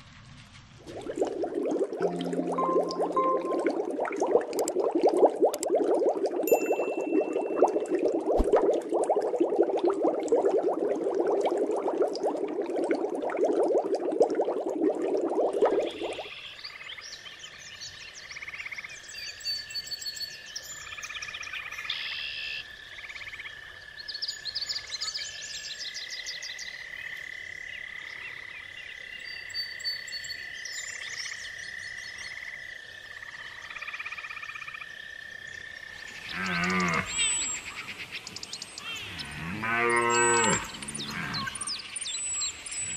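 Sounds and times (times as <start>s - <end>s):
aquarium water bubbling: 0.8s - 16.3s, 36.2s - 42.9s
steady high tone: 2.0s - 4.2s, 6.5s - 8.0s
frogs trilling: 31.4s - 42.9s.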